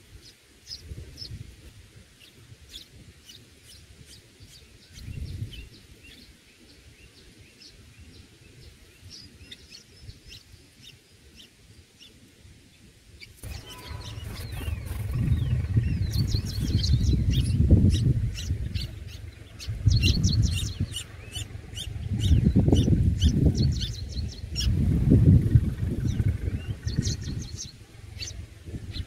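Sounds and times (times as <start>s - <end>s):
nestlings chirping: 2.2s - 6.3s, 13.2s - 29.0s
low rumble: 13.4s - 29.0s.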